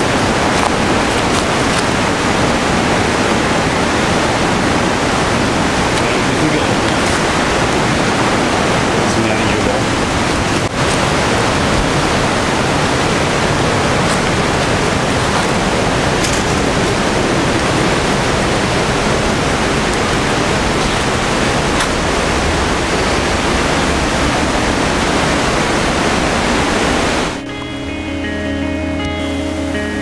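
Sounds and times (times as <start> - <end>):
waterfall rushing: 0.0 - 28.5.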